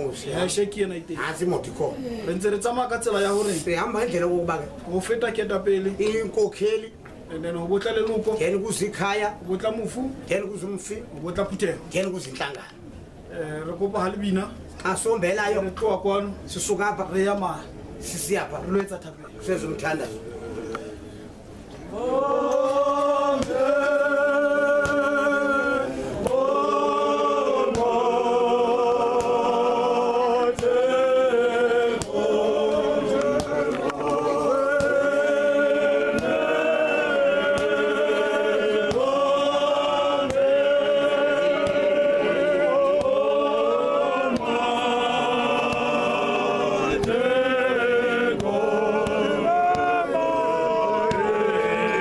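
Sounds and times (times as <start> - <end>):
choir singing a cappella: 21.8 - 52.0.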